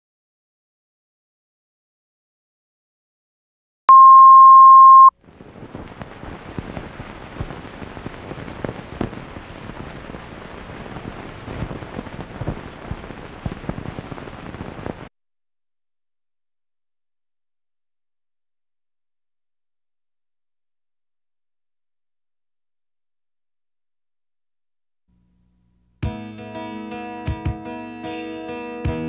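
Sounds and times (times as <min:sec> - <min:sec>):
crackling hiss with pops: 0:05.2 - 0:15.1.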